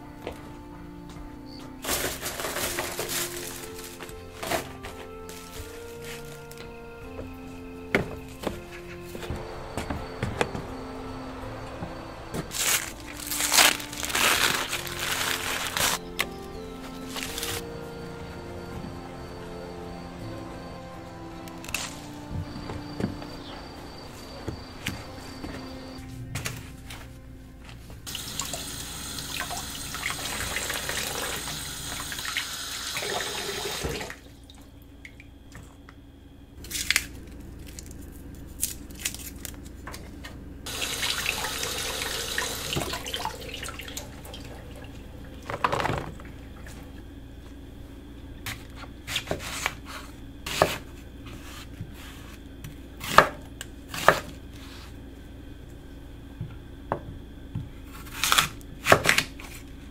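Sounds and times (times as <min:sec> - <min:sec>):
produce and utensils clunking: 0:01.6 - 0:17.7, 0:45.4 - 0:46.4.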